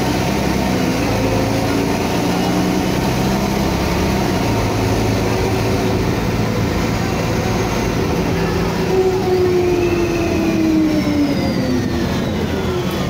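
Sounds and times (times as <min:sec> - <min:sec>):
bus diesel engine running: 0:00.0 - 0:13.0.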